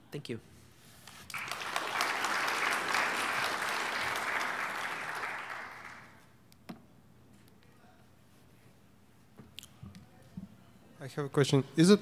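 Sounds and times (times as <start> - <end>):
audience applauding: 1.3 - 6.2.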